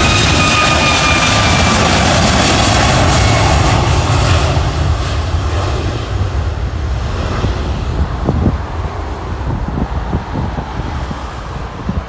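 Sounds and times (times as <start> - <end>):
jet engines hissing: 0.0 - 11.9
jet engine low rumble: 0.0 - 12.0.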